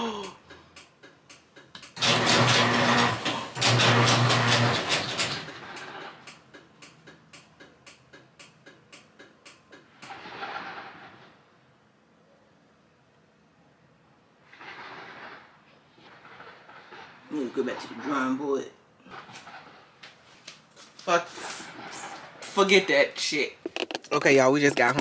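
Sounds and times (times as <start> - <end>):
regular clicking: 0.2 - 2.0, 5.2 - 10.2
garage door motor hum: 0.4 - 11.8.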